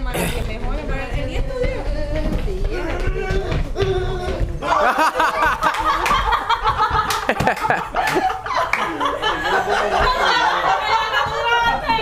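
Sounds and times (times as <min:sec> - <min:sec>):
teenagers laughing and shouting: 0:03.9 - 0:12.0.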